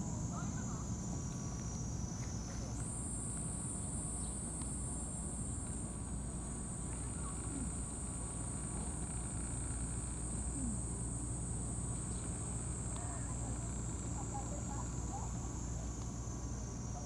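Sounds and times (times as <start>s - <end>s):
high-pitched insect drone: 6.5s - 17.0s.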